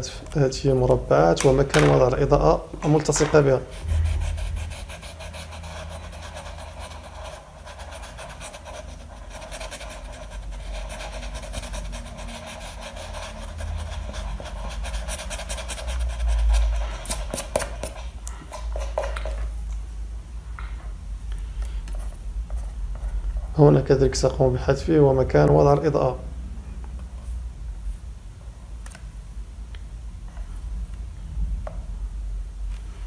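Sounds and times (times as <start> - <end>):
steady low rumble: 1.0 - 7.7
eraser scrubbing paper: 4.5 - 18.0.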